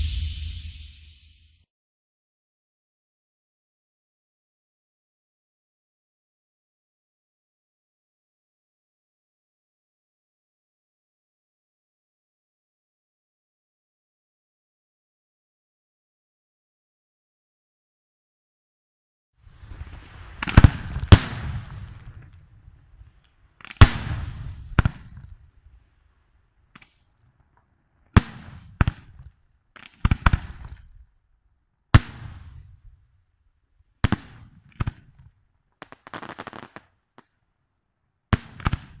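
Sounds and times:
soft hiss: 19.5s - 23.6s.

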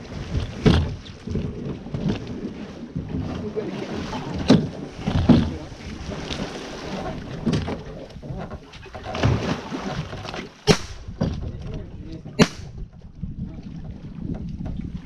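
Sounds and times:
water splashing against boat bow: 0.0s - 15.0s.

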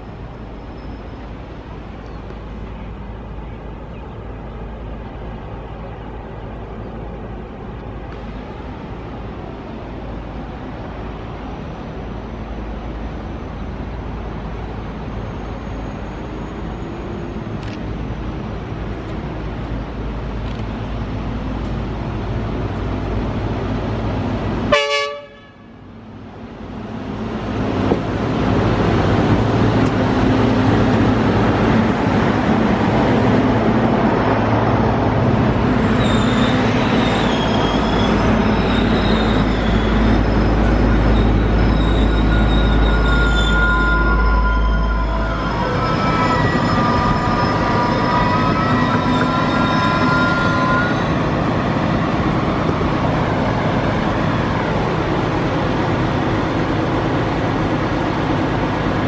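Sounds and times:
diesel engine rumble: 0.0s - 59.0s
wavering wheel squeal: 15.0s - 17.5s, 35.8s - 54.5s.

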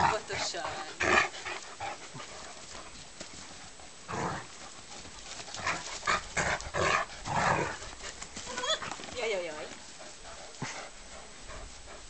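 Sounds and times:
dogs scuffling: 0.0s - 11.9s
dog growling: 5.6s - 7.9s.

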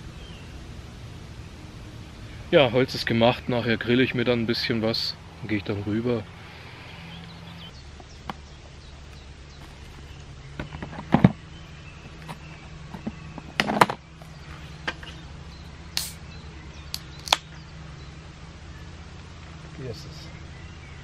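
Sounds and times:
steady low hum: 0.0s - 21.0s
handling clicks and knocks: 7.9s - 15.2s.

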